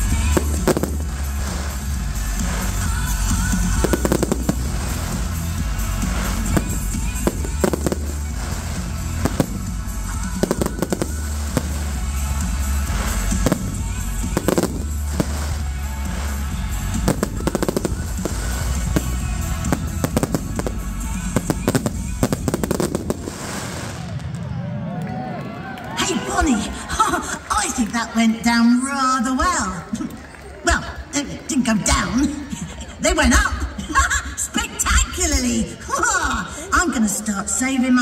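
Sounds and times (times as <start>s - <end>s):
loud music with heavy bass: 0.0s - 23.9s
fireworks banging: 0.0s - 24.6s.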